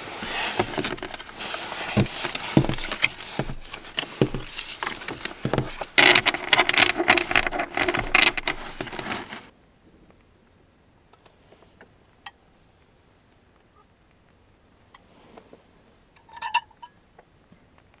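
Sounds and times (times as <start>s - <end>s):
cards riffle-shuffled: 0.2s - 9.5s.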